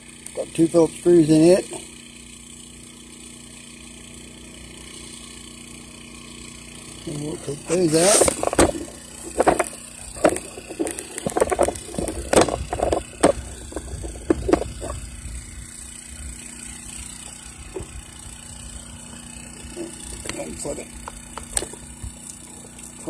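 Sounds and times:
hand tools and metal parts clicking: 7.6s - 15.0s, 19.6s - 23.0s.

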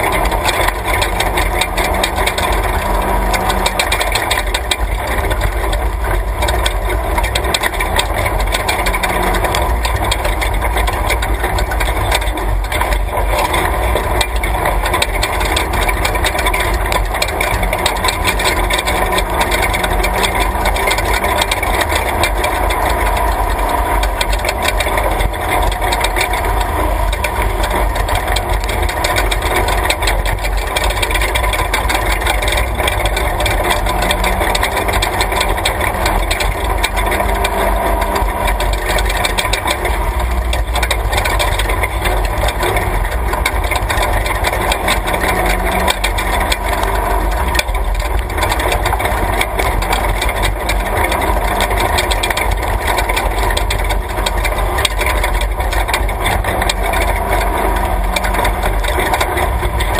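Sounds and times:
body and suspension rattling: 0.0s - 59.9s
vehicle engine running: 0.0s - 59.9s.

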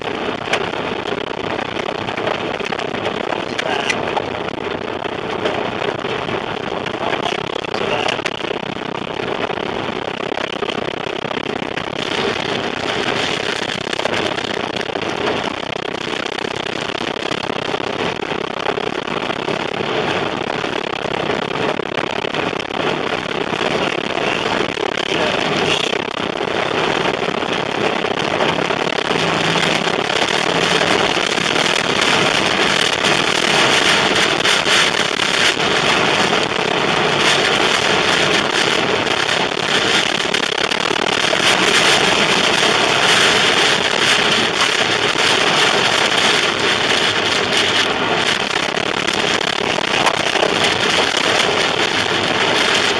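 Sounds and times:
rain and debris pelting car: 0.0s - 52.9s
wind rushing: 22.3s - 52.9s.

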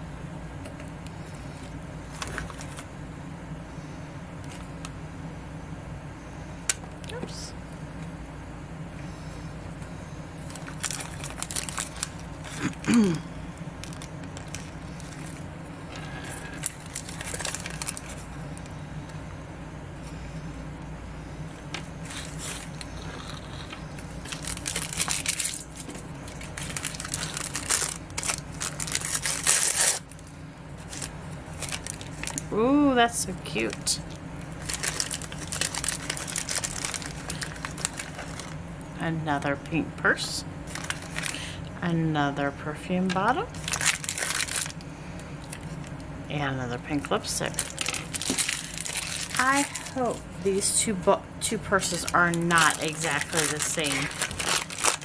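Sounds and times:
steady low hum: 0.0s - 55.0s
foil wrapper crinkling: 1.6s - 2.9s, 10.4s - 13.2s, 13.8s - 18.8s, 21.7s - 38.6s, 40.6s - 41.6s, 43.5s - 45.9s, 47.0s - 50.3s, 51.8s - 55.0s.

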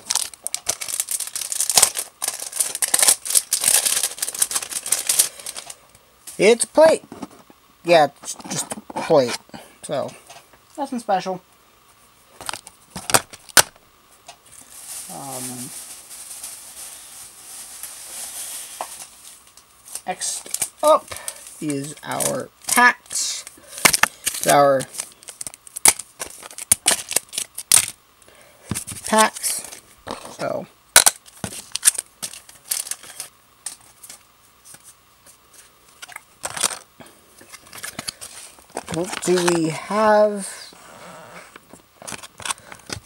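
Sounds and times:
packaging rustling and crinkling: 0.0s - 5.8s, 14.4s - 28.0s, 31.0s - 35.0s, 36.0s - 40.4s, 41.5s - 43.0s.

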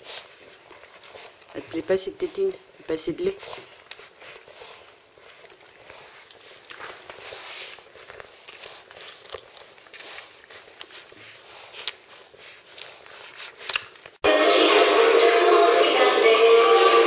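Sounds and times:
puppies suckling wet smacks: 0.0s - 14.2s
loud music: 14.2s - 17.0s.

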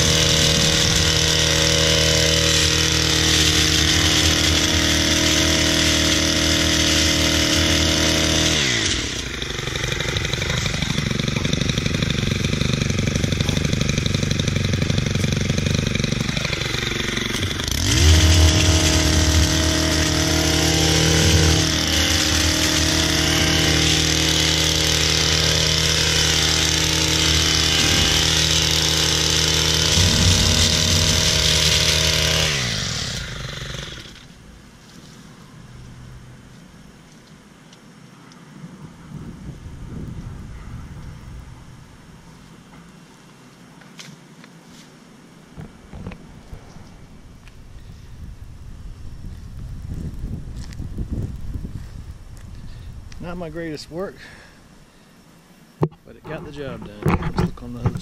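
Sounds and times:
hedge trimmer engine cutting hedge: 0.0s - 34.4s.

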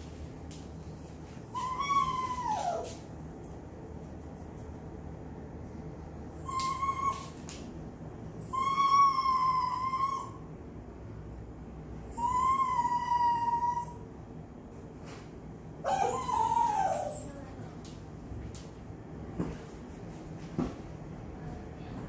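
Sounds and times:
dog whining: 1.5s - 3.0s, 6.3s - 7.4s, 8.4s - 10.5s, 12.1s - 14.1s, 15.8s - 17.5s.

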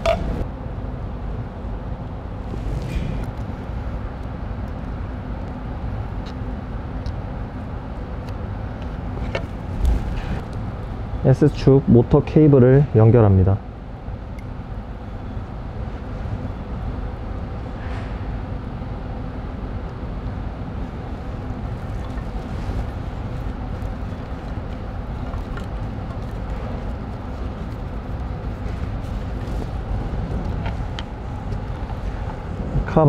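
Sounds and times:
factory machinery hum: 0.0s - 33.0s.

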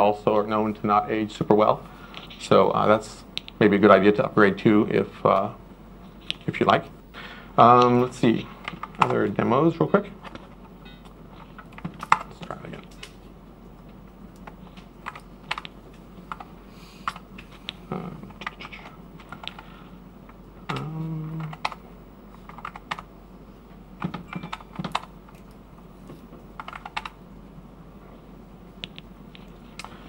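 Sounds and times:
keyboard key presses: 20.7s - 21.8s, 22.4s - 23.1s, 24.0s - 27.2s.

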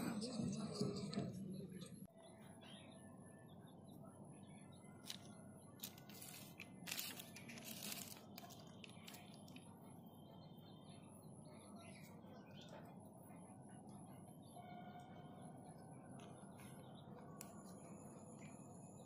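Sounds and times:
plastic toy parts rustling and clicking: 5.0s - 9.6s
bag crinkling: 5.8s - 9.3s.

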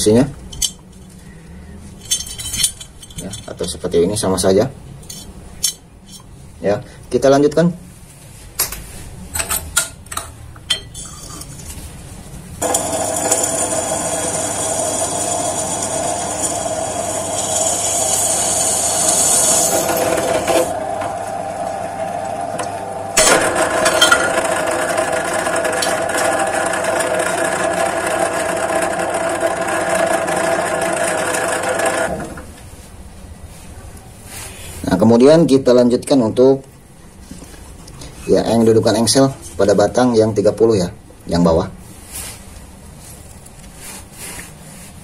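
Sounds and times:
drill press bit cutting metal: 12.6s - 32.4s.

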